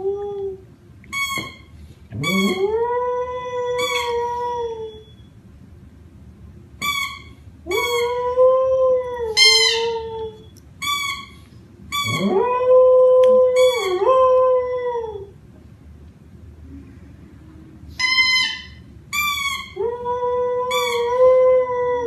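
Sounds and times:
dog howling and yelping: 12.0 - 15.3.

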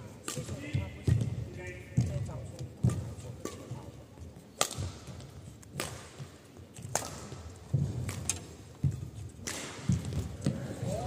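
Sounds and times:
racket striking shuttlecock: 2.8 - 3.9, 4.5 - 10.6.

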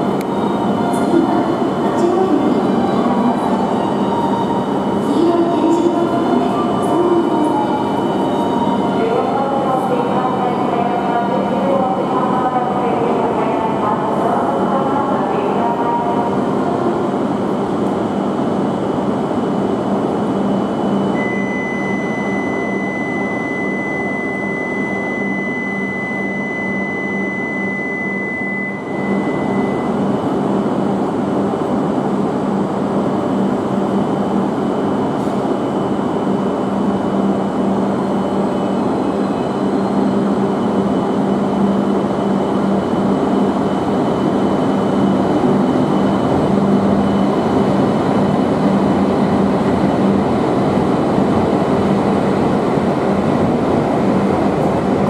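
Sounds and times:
train rumble at platform: 0.0 - 55.0
high steady tone: 21.0 - 30.0.

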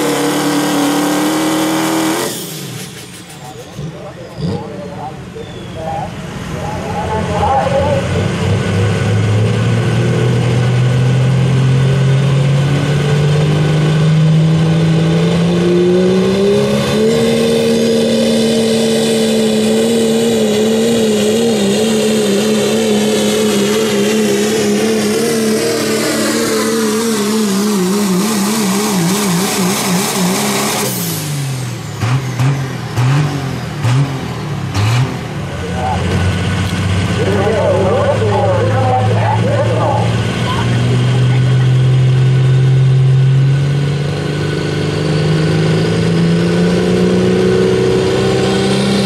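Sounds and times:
diesel truck engine at full throttle: 0.0 - 49.0.

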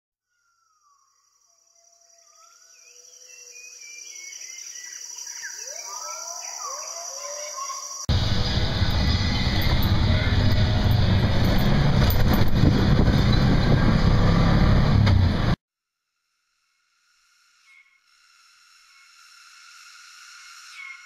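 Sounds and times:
high insect drone: 0.4 - 11.9, 16.2 - 21.0
birds chirping: 1.7 - 12.0
vehicle engine and road noise: 8.1 - 15.6.

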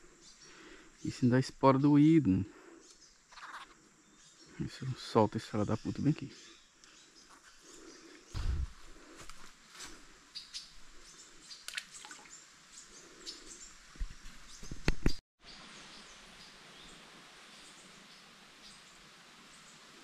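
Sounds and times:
forest birds chirping: 0.0 - 20.0.

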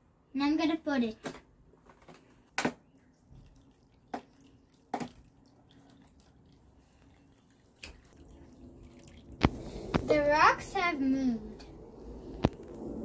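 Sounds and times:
water trickling onto soil: 3.0 - 9.6.

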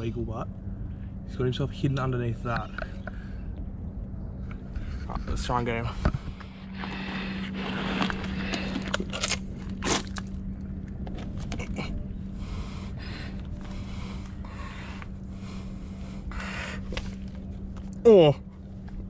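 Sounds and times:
low hum: 0.0 - 19.0
scraping and crunching in mud: 6.8 - 10.4.

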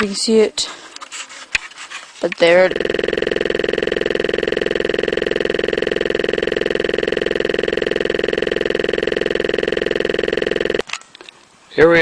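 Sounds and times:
electronic glitch buzz: 2.7 - 10.8.

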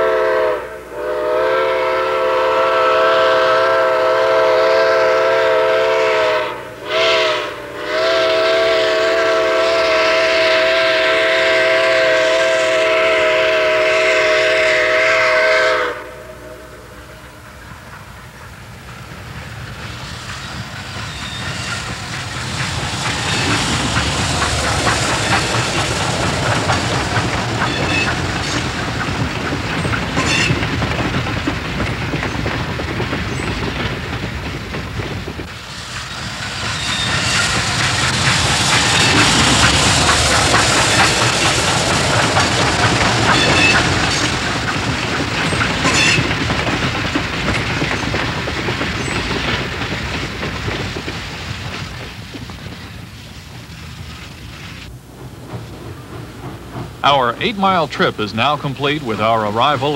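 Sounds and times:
steam hissing: 0.0 - 59.9
train wheels clattering on rails: 17.2 - 59.9.

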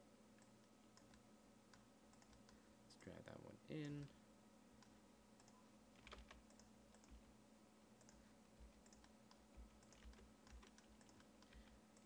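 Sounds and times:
computer keyboard clicks: 5.4 - 7.2, 8.8 - 11.8.

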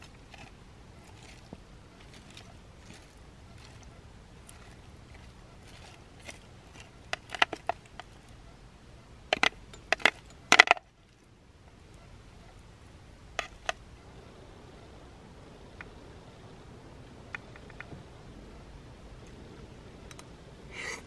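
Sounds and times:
crackles and clicks of crumpling: 0.0 - 8.6, 9.3 - 13.9.

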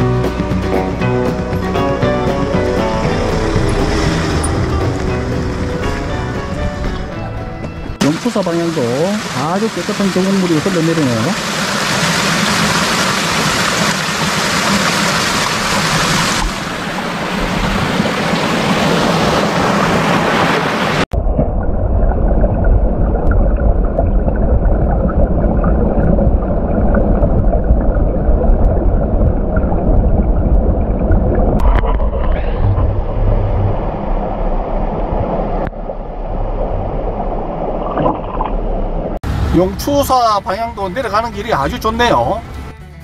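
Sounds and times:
vehicle driving rumble: 0.0 - 8.0
stream water rushing: 0.9 - 21.1.

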